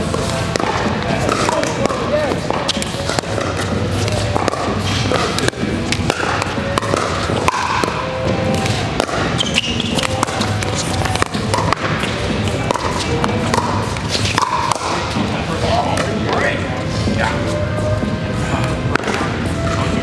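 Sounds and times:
background music: 0:00.0 - 0:20.0
paddles striking plastic ball: 0:00.5 - 0:14.9.

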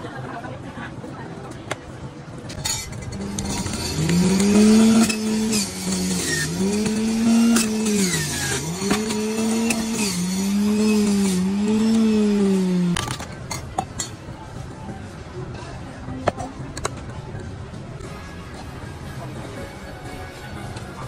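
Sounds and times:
juicer motor hum: 0:02.5 - 0:13.2.

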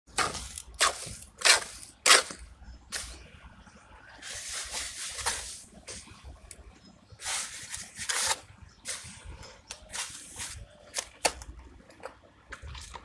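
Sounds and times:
wet mortar scraping: 0:00.1 - 0:03.2
piping bag rustling scrape: 0:04.2 - 0:06.2, 0:07.2 - 0:11.0.

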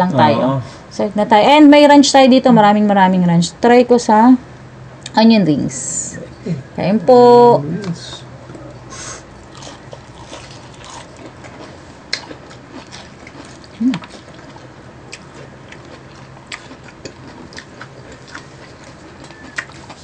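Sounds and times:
crunching and chewing fried chicken: 0:09.3 - 0:20.0
wet mouth sounds: 0:12.1 - 0:20.0
person humming: 0:13.8 - 0:14.1.

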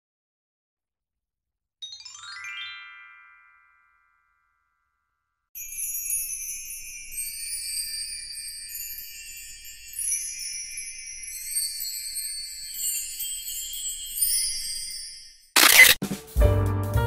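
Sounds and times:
descending bell-like chimes: 0:01.8 - 0:05.0, 0:05.6 - 0:15.5
jingling bells: 0:05.6 - 0:15.5.

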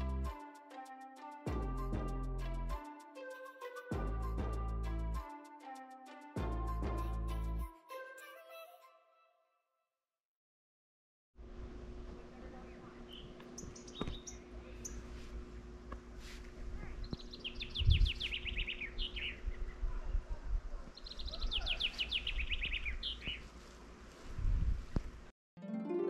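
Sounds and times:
songbird singing: 0:12.6 - 0:15.1, 0:17.0 - 0:19.9, 0:20.9 - 0:23.5
bird chirps: 0:13.1 - 0:15.0, 0:17.0 - 0:19.8, 0:20.9 - 0:23.5.

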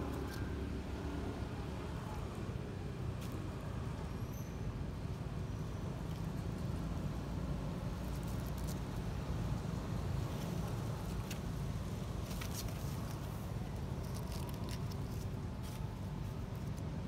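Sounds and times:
dry leaves crackling: 0:10.2 - 0:17.0.

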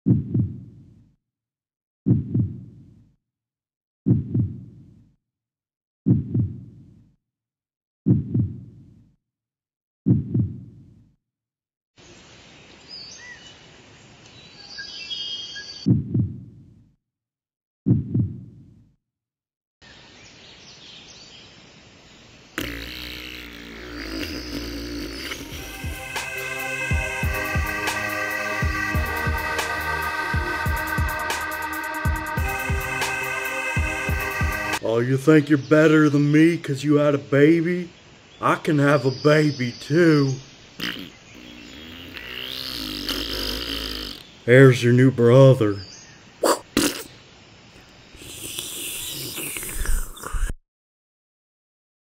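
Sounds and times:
heartbeat thumps: 0:00.0 - 0:00.9, 0:02.1 - 0:03.0, 0:04.1 - 0:05.0, 0:06.1 - 0:06.9, 0:08.1 - 0:08.9, 0:10.1 - 0:10.9, 0:15.9 - 0:16.7, 0:17.9 - 0:18.7, 0:25.5 - 0:26.2, 0:30.4 - 0:31.4
music: 0:25.3 - 0:34.8
faint background noise: 0:34.8 - 0:50.5.

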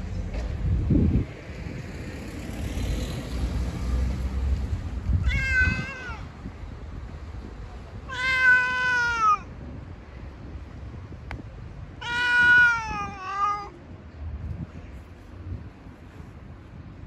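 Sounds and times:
cat meowing: 0:05.2 - 0:06.3, 0:08.1 - 0:09.5, 0:12.0 - 0:13.8.

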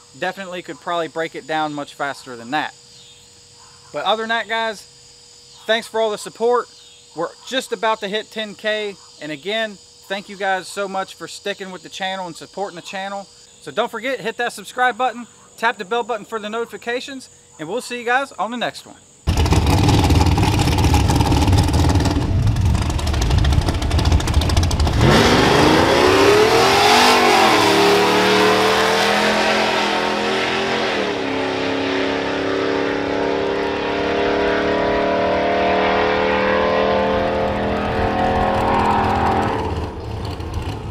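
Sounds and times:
engine revving: 0:19.3 - 0:40.9.

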